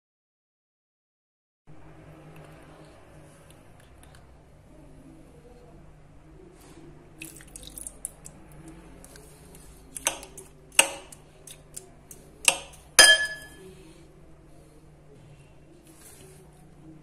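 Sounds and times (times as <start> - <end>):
spoon clinking on glass bowl: 12.5 - 13.6.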